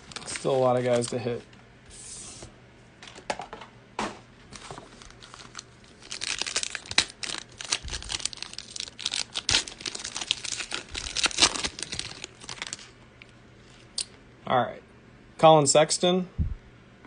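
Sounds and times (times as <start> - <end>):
foil wrapper crinkling: 0.0 - 1.4, 4.5 - 13.0.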